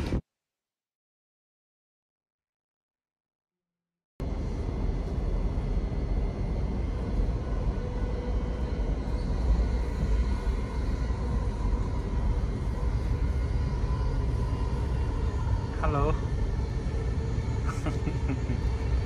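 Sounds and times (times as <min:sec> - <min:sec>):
faint steady whine: 0:04.2 - 0:19.0
train rumble inside carriage: 0:04.2 - 0:19.0.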